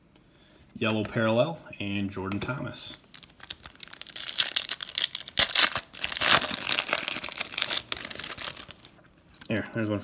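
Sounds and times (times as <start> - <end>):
foil wrapper crinkling and tearing: 2.9 - 9.0.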